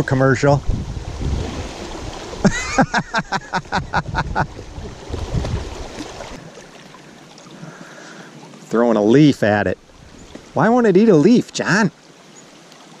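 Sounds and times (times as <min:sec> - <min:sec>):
river rushing over gravel: 0:00.4 - 0:12.0.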